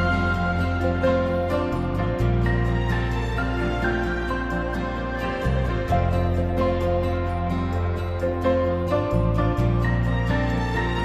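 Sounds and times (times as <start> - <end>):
sustained chords music: 0.0 - 11.0.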